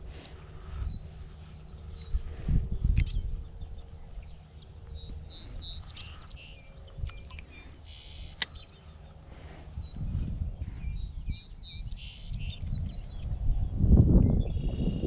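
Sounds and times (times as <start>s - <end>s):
small birds chirping: 0.0s - 15.0s
sharp click: 8.3s - 8.7s.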